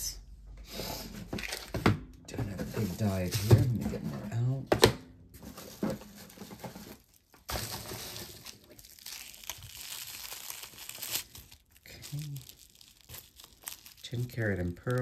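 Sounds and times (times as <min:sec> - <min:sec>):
packaging crinkling and rustling: 0:01.4 - 0:01.8, 0:05.4 - 0:15.0.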